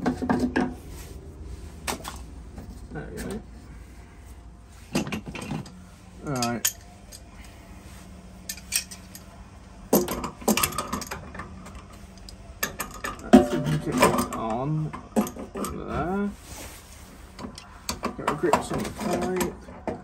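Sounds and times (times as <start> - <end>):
hand tools clinking on metal: 6.2 - 7.3, 8.4 - 9.3.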